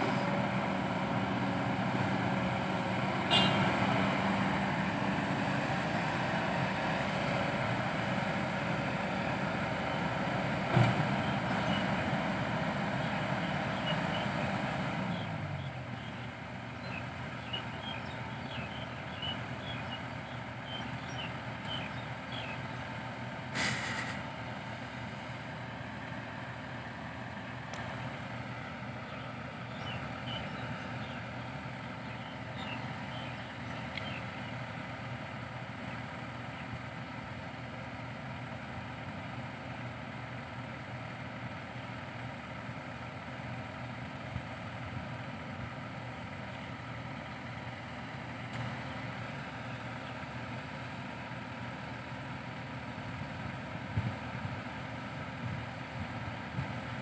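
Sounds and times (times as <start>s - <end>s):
excavator diesel engine: 0.0s - 57.0s
short hiss: 23.6s - 24.2s.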